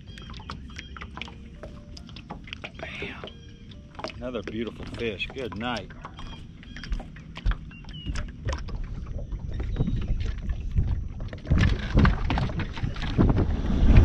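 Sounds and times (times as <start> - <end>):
gear knocks and clicks on deck: 4.0 - 14.0
wind buffeting microphone: 4.3 - 14.0.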